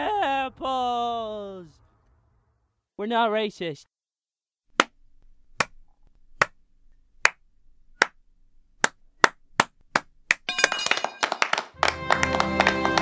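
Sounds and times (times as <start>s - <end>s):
slow hand clapping: 8.8s - 13.0s.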